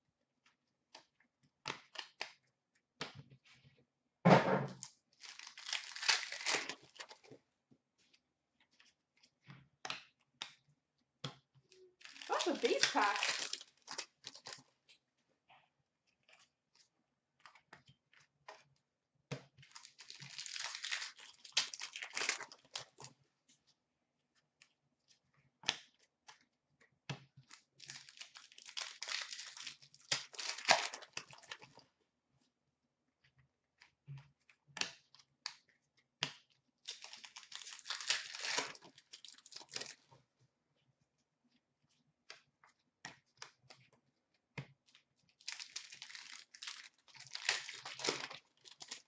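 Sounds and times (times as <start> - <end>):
cards clicking and snapping: 0.4 - 2.4, 3.0 - 3.2, 9.6 - 10.6, 25.6 - 31.8, 33.8 - 35.6, 36.2 - 40.0
card pack wrappers crinkling and tearing: 4.8 - 7.3, 12.0 - 14.7, 19.6 - 23.2, 27.4 - 31.8, 36.8 - 40.1, 45.3 - 49.0.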